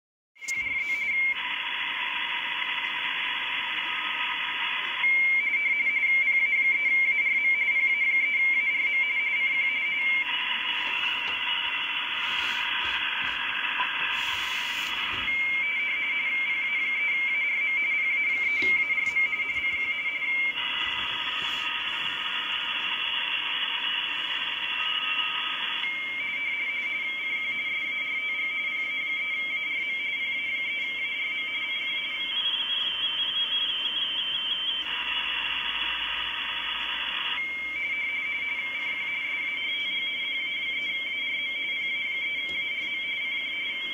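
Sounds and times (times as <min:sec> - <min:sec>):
radio receiver hiss: 0:00.4 - 0:05.1, 0:10.2 - 0:15.9, 0:18.3 - 0:26.0, 0:34.8 - 0:37.4
warbling two-tone teletype signal: 0:00.4 - 0:43.9.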